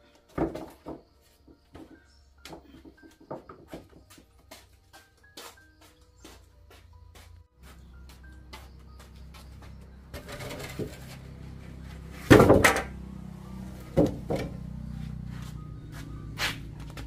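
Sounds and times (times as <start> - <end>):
small wooden knocks: 0.3 - 4.2
wooden planks scraping on concrete: 10.1 - 12.9
loud wooden thud: 12.2 - 13.0, 14.0 - 14.6.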